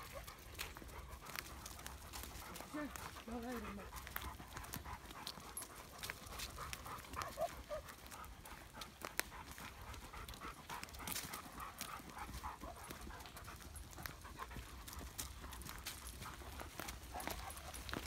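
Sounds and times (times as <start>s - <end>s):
dog panting: 0.0s - 18.0s.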